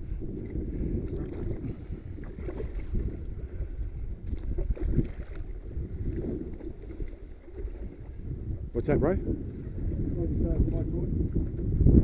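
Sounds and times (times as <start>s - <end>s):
wind rumbling on microphone: 0.0s - 12.0s
water sloshing against boat hull: 0.4s - 8.7s
water slaps: 4.2s - 5.6s.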